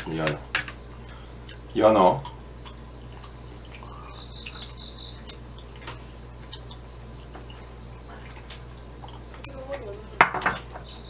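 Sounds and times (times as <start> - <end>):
low hum: 0.0 - 11.0
chewing clicks: 2.2 - 7.6.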